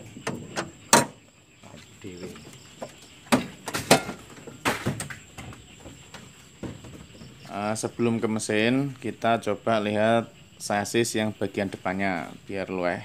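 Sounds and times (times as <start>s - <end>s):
knocks and clanks: 0.0s - 1.2s, 2.3s - 7.5s.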